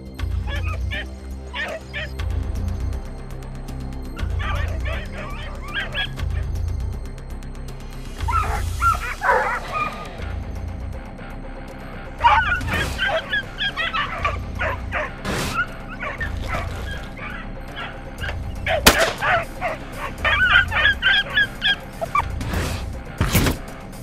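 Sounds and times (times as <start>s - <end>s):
hunting dogs baying: 0.3s - 2.2s, 4.1s - 6.8s, 8.2s - 10.6s, 11.8s - 23.2s
sharp crack: 18.7s - 19.7s.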